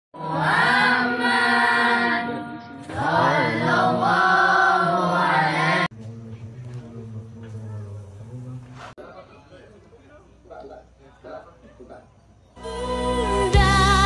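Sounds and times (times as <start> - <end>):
boys singing through microphone: 0.2 - 5.9, 12.6 - 14.0.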